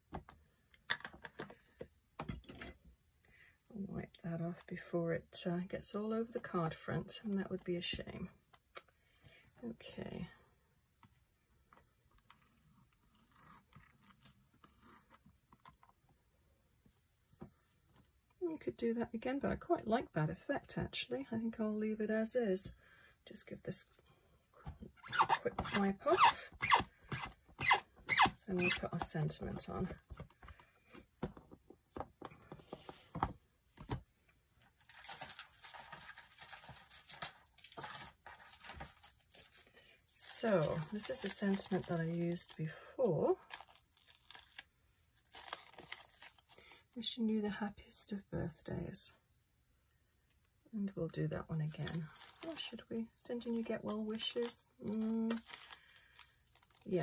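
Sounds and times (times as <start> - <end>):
plastic sheet rustling: 34.8 - 42.6, 51.7 - 57.0.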